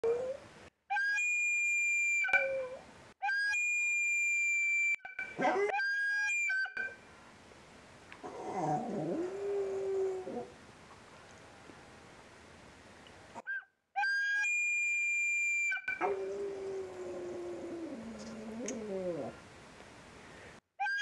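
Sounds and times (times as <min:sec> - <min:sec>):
small dog howling: 0:08.2 - 0:10.5, 0:16.0 - 0:19.4.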